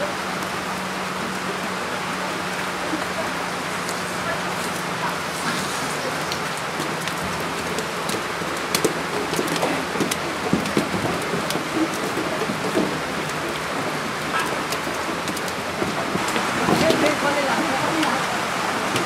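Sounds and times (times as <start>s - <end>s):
hooves clattering on wooden ramp: 3.8s - 19.0s.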